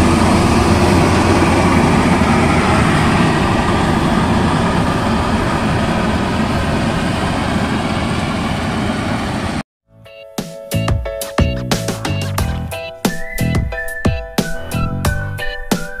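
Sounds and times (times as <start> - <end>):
combine harvester engine droning: 0.0 - 9.6.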